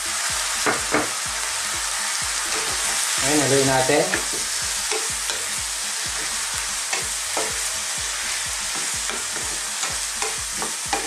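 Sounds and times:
frying hiss: 0.0 - 11.0
spatula knocking pan: 0.6 - 1.2, 4.0 - 5.4, 6.1 - 7.7, 8.7 - 11.0.

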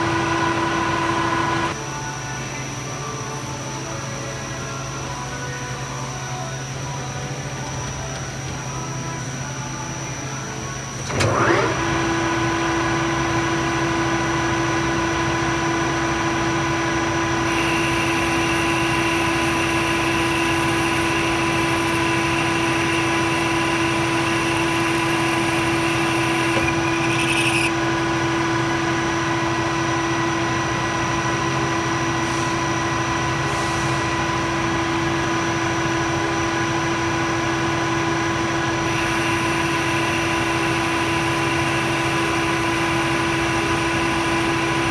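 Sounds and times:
lathe motor whine: 0.0 - 44.9
boring bar cutting hiss: 17.5 - 28.4.

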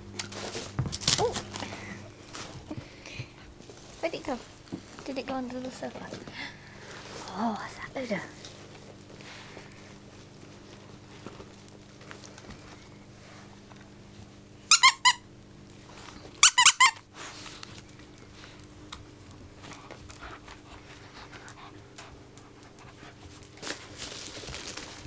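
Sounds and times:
soft rustling of toy: 3.5 - 13.6, 19.6 - 25.0
squeaky dog toy squeaking: 14.7 - 15.2, 16.4 - 17.0.

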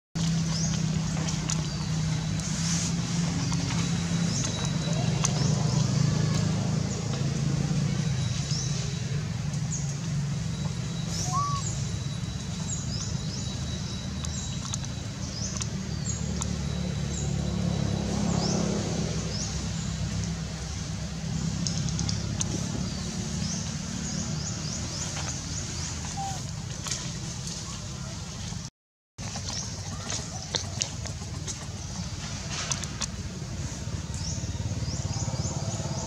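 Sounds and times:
small birds chirping: 0.2 - 18.6, 21.4 - 28.2.

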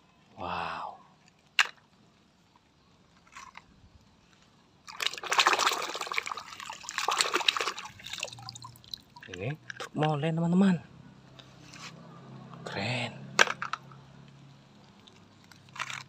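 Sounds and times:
water splashing and sloshing: 4.8 - 9.9.

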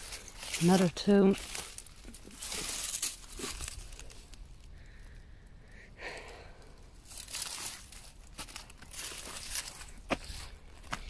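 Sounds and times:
faint scuffing footsteps: 7.2 - 11.0.

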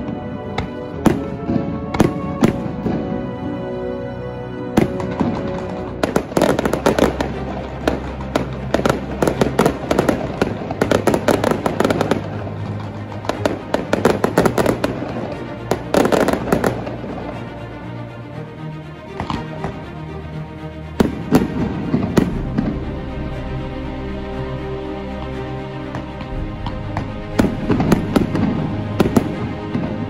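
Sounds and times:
fireworks bangs and crackles: 0.0 - 3.3, 4.8 - 17.3, 21.0 - 22.9, 25.9 - 30.0
background music: 0.0 - 30.0.

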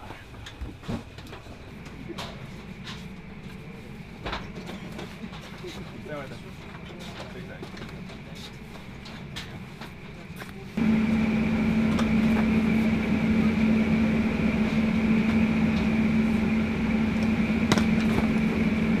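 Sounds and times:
refrigeration machinery hum: 1.4 - 19.0.

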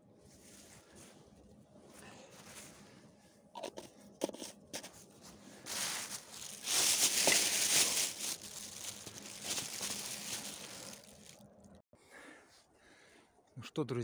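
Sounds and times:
plastic bag rustling: 4.4 - 11.8.

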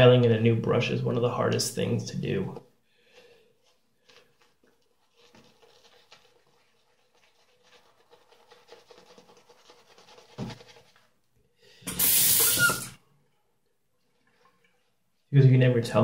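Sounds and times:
brush scratchy rubbing on stubble: 3.6 - 11.2.

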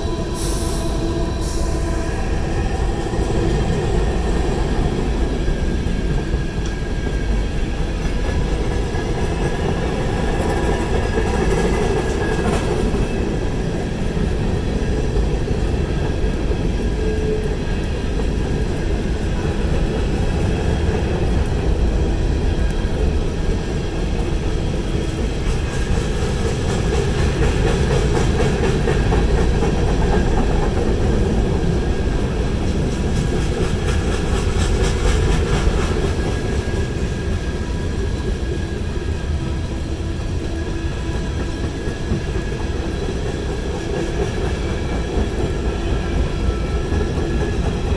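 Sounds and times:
freight train wheels rumbling on track: 0.0 - 47.9.

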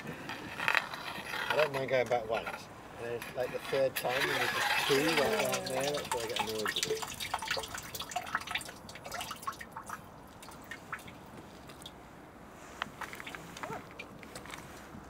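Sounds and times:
water dripping and splashing: 4.5 - 12.0.

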